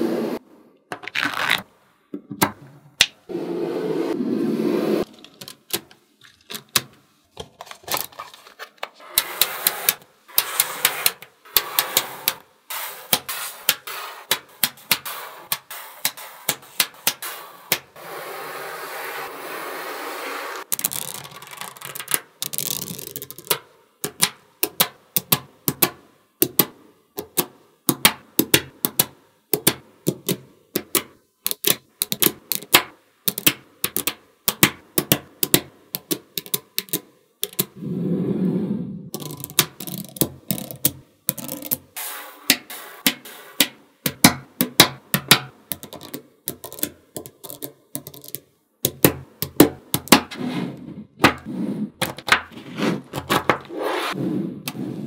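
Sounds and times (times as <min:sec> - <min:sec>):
magnetic balls rustling: 0:00.9 - 0:03.3, 0:04.8 - 0:18.0, 0:20.6 - 0:24.3, 0:29.6 - 0:37.8, 0:38.9 - 0:53.8
magnetic balls clicking: 0:20.7 - 0:37.8, 0:39.1 - 0:50.2.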